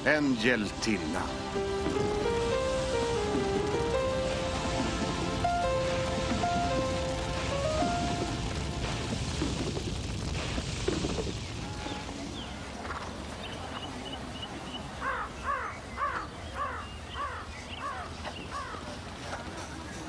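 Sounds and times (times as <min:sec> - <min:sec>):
rushing noise: 0:00.0 - 0:12.8.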